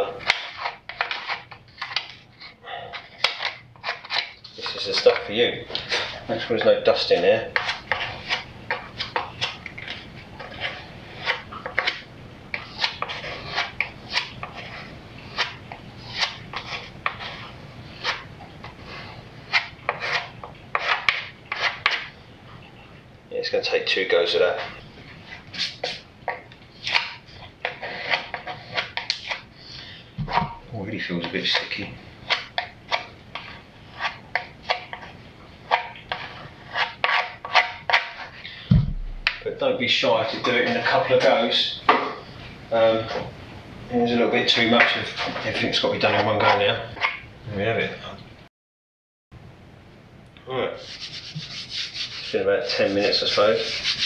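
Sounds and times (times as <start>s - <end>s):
filler knife scraping: 0.1s - 22.1s, 24.5s - 30.6s, 31.2s - 38.4s, 50.8s - 54.0s.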